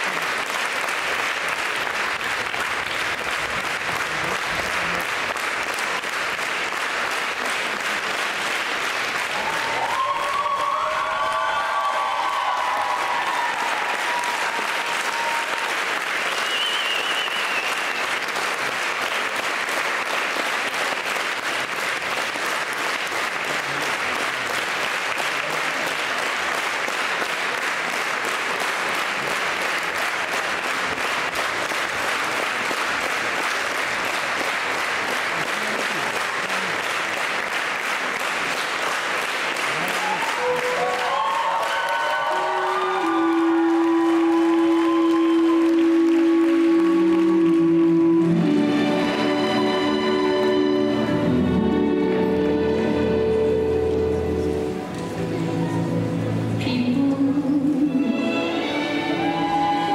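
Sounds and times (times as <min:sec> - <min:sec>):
audience applauding: 0:00.0 - 0:55.3, 0:58.5 - 0:59.9
music: 0:40.2 - 0:41.1, 0:42.3 - 0:59.9.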